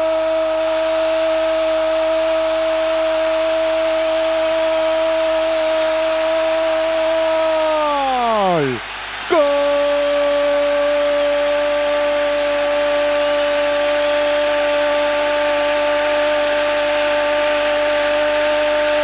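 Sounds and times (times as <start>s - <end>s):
commentator's long goal cry: 7.0s - 11.5s
stadium crowd cheering: 7.2s - 15.7s.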